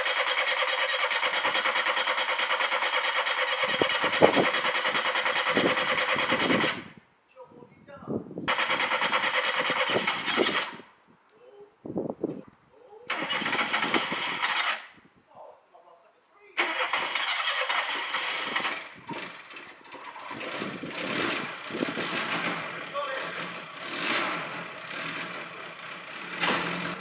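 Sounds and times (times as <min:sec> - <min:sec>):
car engine cranking on starter: 0:08.5 - 0:10.8, 0:13.1 - 0:14.9, 0:16.6 - 0:27.0.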